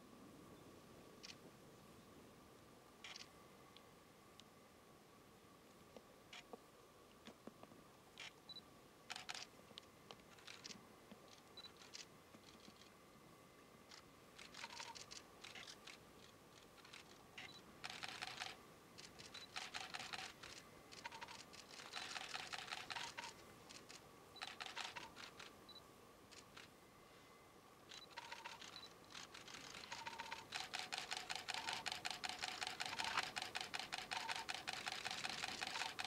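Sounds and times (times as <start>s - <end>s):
faint steady whine: 0.0s - 36.0s
rapid camera shutter clicks: 9.1s - 9.5s, 10.4s - 10.8s, 13.9s - 16.0s, 16.6s - 25.5s, 27.9s - 36.0s.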